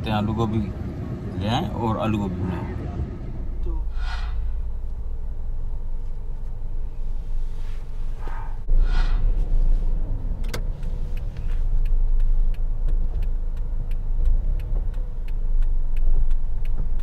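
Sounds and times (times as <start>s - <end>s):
car engine low rumble: 0.0s - 17.0s
turn signal ticking: 3.0s - 7.2s, 8.6s - 17.0s.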